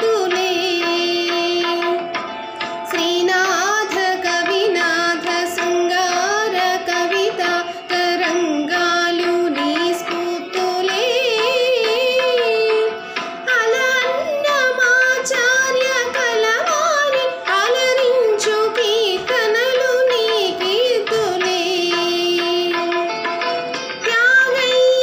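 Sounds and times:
light percussion: 0.0s - 25.0s
woman singing: 0.0s - 25.0s.

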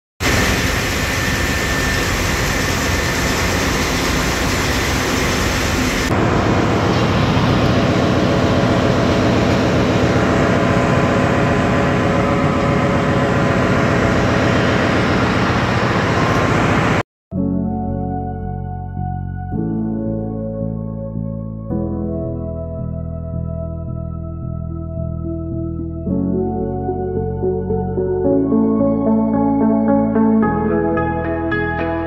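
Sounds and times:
engine room machinery noise: 0.2s - 17.0s.

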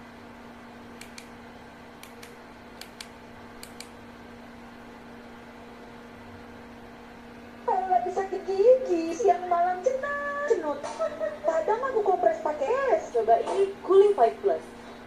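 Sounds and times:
projector cooling fan hum: 0.0s - 15.0s
light sharp clicks: 1.0s - 1.3s, 2.0s - 4.0s.

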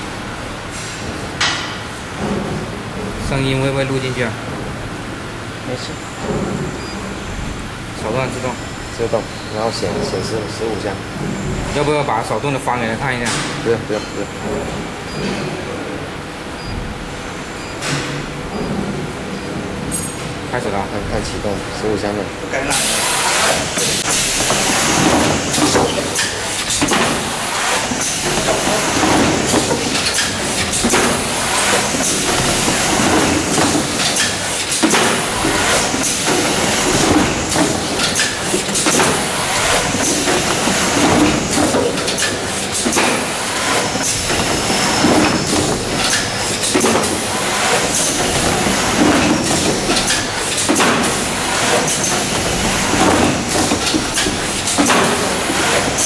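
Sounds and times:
carton machine mechanical clatter: 0.0s - 56.0s
machine clacks and short hisses: 22.7s - 56.0s.

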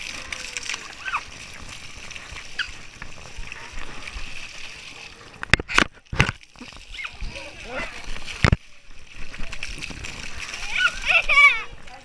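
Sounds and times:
water spray hissing: 0.0s - 5.4s.

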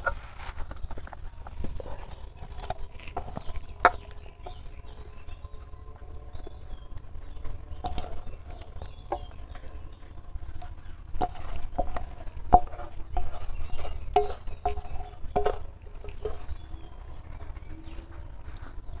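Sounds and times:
metal spoon scraping steel bowl: 7.4s - 16.9s.

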